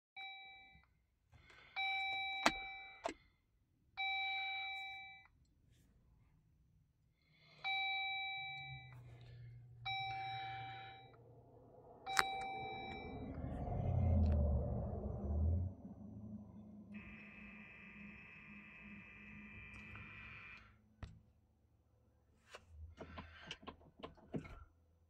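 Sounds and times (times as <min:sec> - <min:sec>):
car warning chime: 0:00.2 - 0:00.9, 0:01.7 - 0:03.2, 0:04.0 - 0:05.3, 0:07.6 - 0:14.2
low hum: 0:07.6 - 0:20.8.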